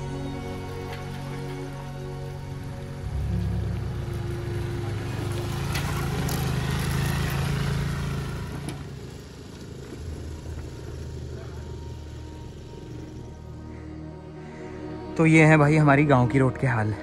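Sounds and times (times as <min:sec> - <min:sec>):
vehicle engine humming: 0:00.0 - 0:16.2
rushing noise: 0:03.0 - 0:08.5.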